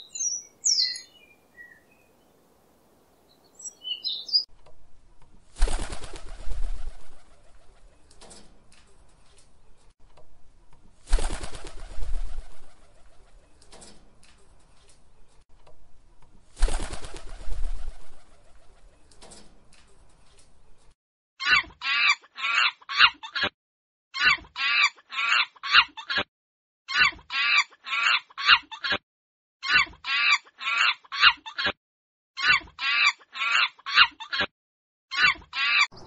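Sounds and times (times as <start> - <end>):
bird calling short high calls: 0.0 - 2.1, 3.5 - 4.5.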